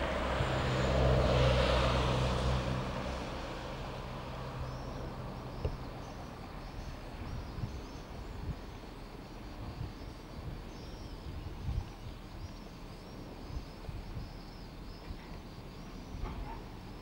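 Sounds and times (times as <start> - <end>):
vehicle passing: 0.0 - 6.0.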